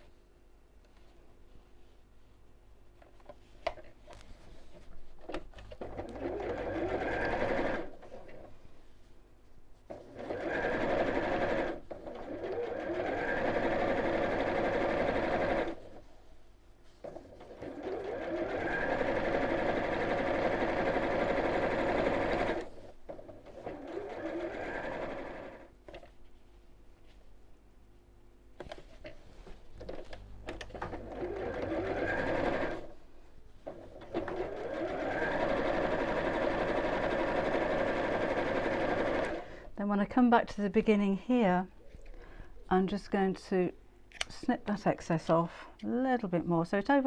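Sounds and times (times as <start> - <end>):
sewing machine stitching: 5.6 - 8.5, 9.9 - 16.0, 17.0 - 26.1, 29.8 - 32.9, 33.6 - 39.5.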